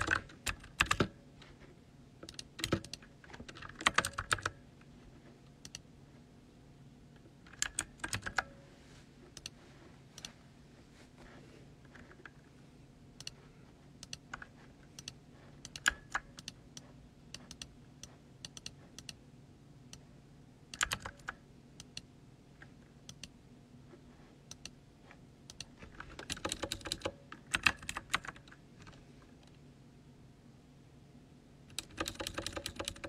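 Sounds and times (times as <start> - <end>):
computer keyboard typing: 0.0 - 1.2, 2.2 - 4.6, 7.5 - 8.6, 14.0 - 19.2, 20.7 - 22.0, 25.5 - 29.0, 31.7 - 33.0.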